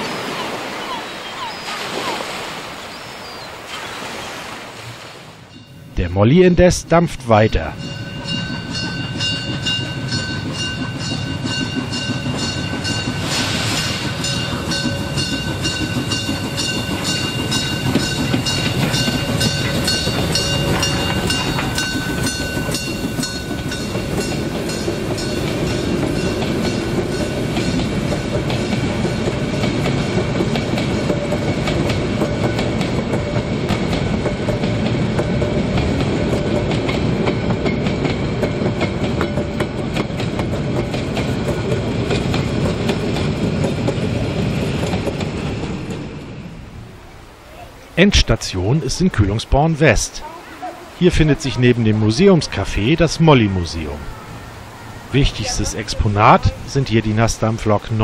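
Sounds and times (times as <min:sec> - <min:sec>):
coaches clacking over rail joints: 0:05.5 - 0:58.0
steam locomotive chuffing: 0:05.6 - 0:47.2.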